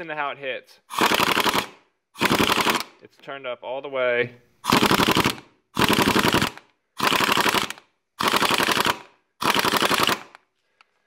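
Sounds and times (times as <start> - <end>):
air impact wrench hammering: 0.9 - 2.9, 4.6 - 10.3.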